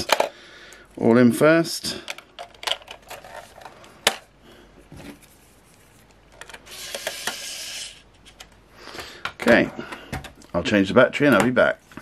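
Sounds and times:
plastic parts clicking: 0.0 - 0.4, 2.0 - 4.3, 6.3 - 7.5.

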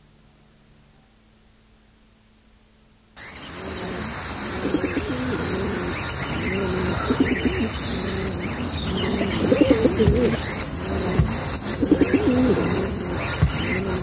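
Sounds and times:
faint tape hiss: 0.0 - 14.0
birds calling: 3.2 - 14.0.

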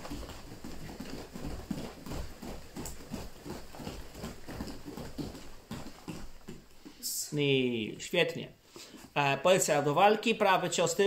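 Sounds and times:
bare feet landing on padded mat: 0.0 - 7.0.

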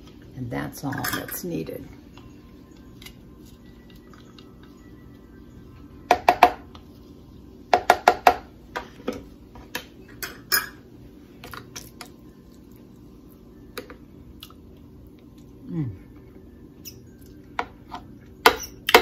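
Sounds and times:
utensils clinking on bowls: 0.8 - 1.6, 10.1 - 10.8.

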